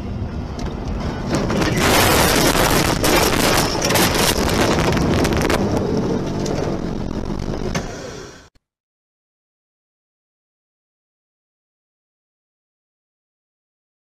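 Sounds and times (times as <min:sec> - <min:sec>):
knocks and scrapes: 0:00.6 - 0:08.0
snow and debris hitting car: 0:01.4 - 0:07.9.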